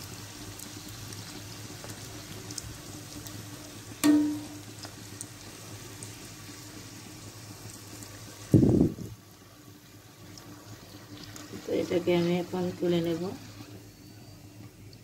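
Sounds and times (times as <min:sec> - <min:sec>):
oil sizzling: 0:00.0 - 0:15.0
metal skimmer clanging on pan: 0:04.0 - 0:04.7.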